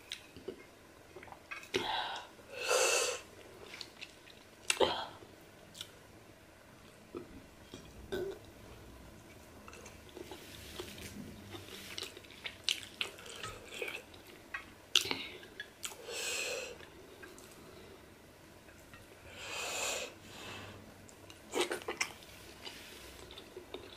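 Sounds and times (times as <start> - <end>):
close chewing: 9.7 - 16.0
breath: 19.3 - 20.8.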